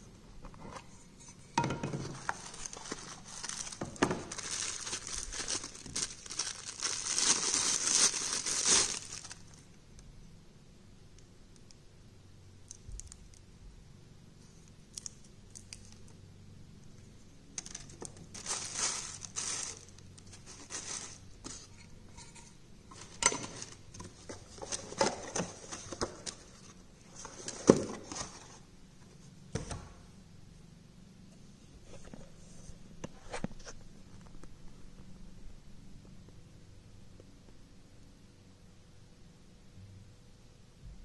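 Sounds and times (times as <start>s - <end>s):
cardboard and paper rustling: 0.5s - 9.6s, 17.6s - 28.6s.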